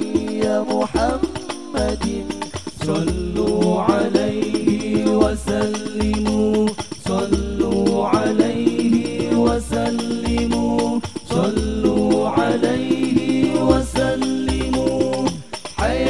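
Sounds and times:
jingling percussion: 0.0 - 16.0
men singing in unison: 0.0 - 16.0.

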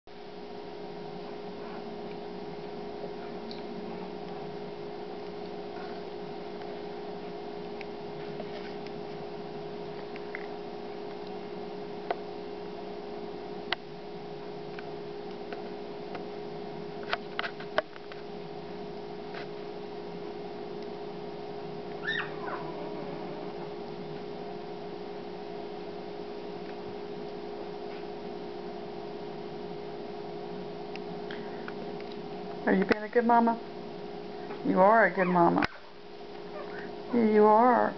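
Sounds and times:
steady low hum: 0.1 - 37.9
puppy squeak: 22.0 - 22.7
puppies nursing: 22.0 - 23.8.

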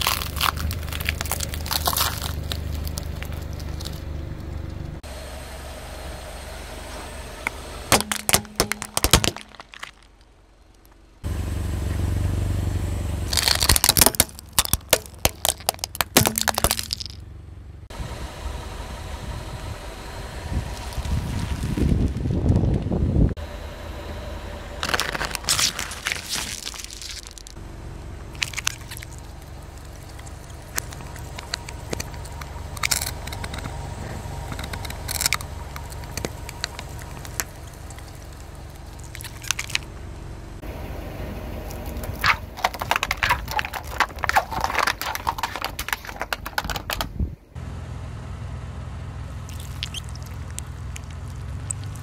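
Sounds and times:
tyre crushing crackling objects: 0.0 - 4.3, 7.9 - 10.3, 13.3 - 17.2, 24.8 - 27.6, 28.2 - 39.9, 41.6 - 47.3, 49.4 - 52.0
low engine hum: 0.0 - 52.0.

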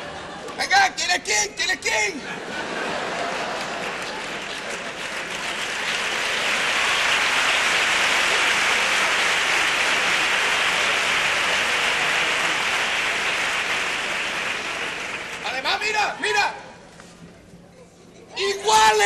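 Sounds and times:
audience applauding: 2.7 - 16.2.

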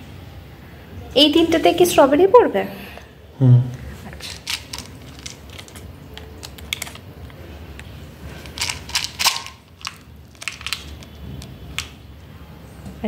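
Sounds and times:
paper liners clicking and rustling: 4.2 - 7.4, 8.3 - 12.0.

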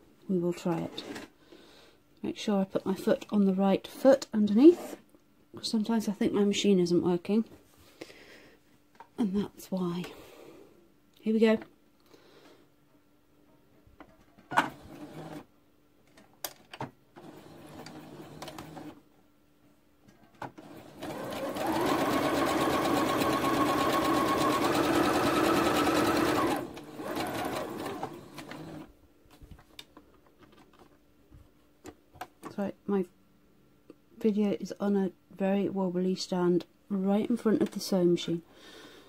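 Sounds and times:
sewing machine stitching: 14.6 - 15.5, 17.2 - 19.0, 20.6 - 28.9.

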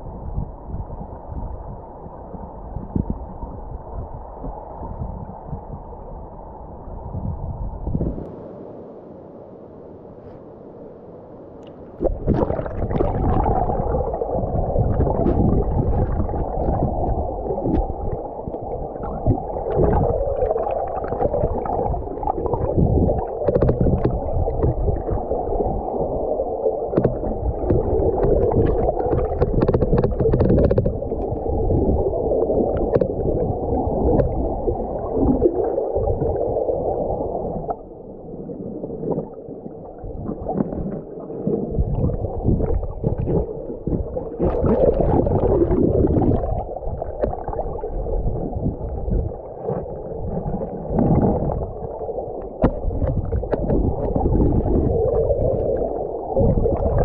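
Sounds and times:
muffled underwater river rush: 0.0 - 57.0
sharp ticks underwater: 0.2 - 5.7, 14.8 - 25.3, 26.9 - 31.5, 32.7 - 34.5, 41.4 - 49.8, 52.4 - 55.8.

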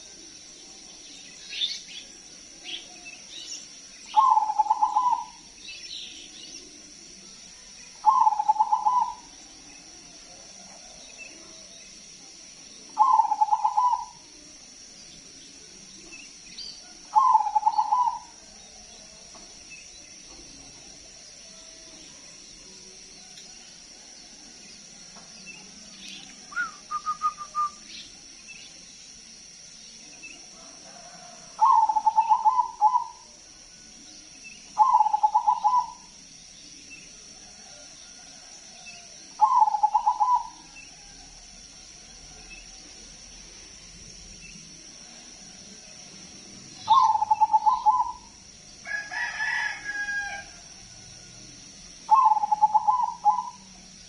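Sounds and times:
dove stuttering cooing: 46.9 - 48.2, 52.1 - 53.6.

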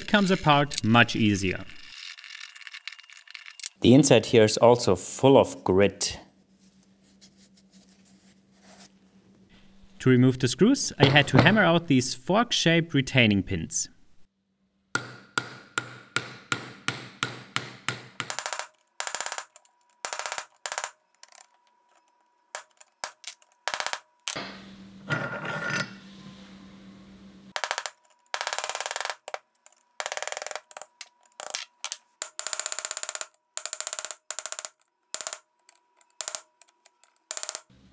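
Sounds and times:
hammer striking metal punch: 15.0 - 18.4.

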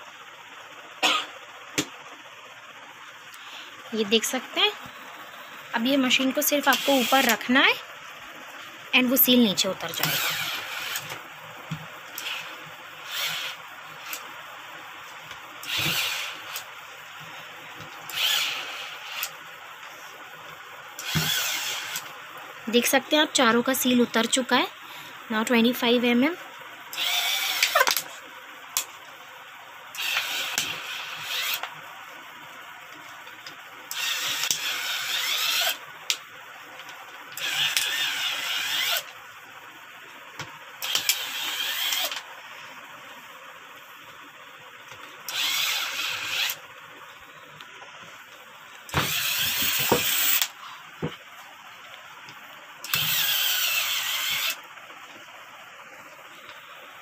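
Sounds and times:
capping machine running: 0.0 - 22.5, 26.9 - 28.2, 29.9 - 32.0, 32.8 - 39.2, 40.3 - 42.3, 44.9 - 46.8, 48.3 - 51.1, 52.8 - 54.7.

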